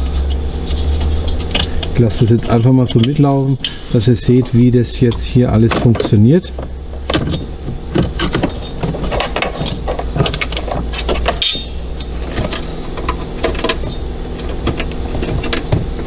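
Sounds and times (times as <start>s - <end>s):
steady low hum: 0.0s - 16.0s
plastic plugs clicking and rattling: 4.4s - 16.0s.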